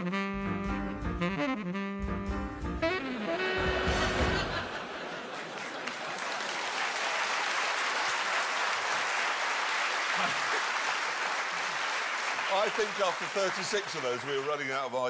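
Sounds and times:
audience applauding: 3.1 - 15.0.

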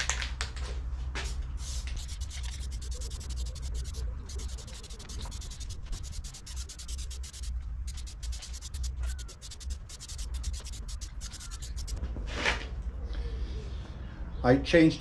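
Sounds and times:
aerosol can mixing ball rattling: 1.9 - 12.0.

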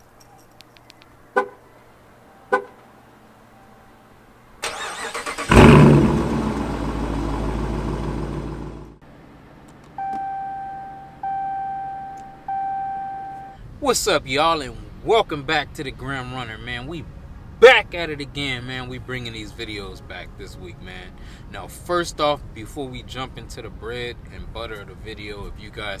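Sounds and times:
car engine fast idle: 4.6 - 9.0
car engine starting: 4.6 - 9.0
car horn chirps: 10.0 - 13.6.

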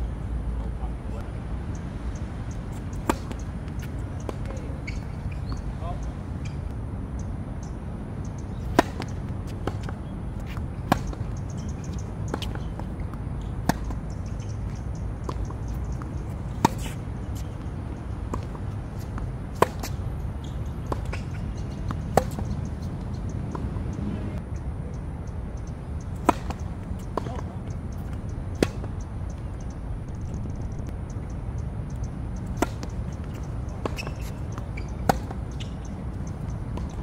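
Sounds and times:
rackets hitting tennis ball: 2.8 - 5.7, 8.6 - 24.0, 26.1 - 29.0, 32.3 - 37.0
ball bouncing: 18.3 - 23.8
low rumble: 29.9 - 31.0.

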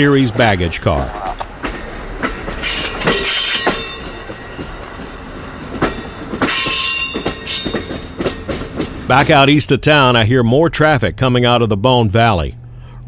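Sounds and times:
train wheels clicking over rail joints: 0.0 - 10.1
high-pitched wheel squeal: 6.0 - 8.2.

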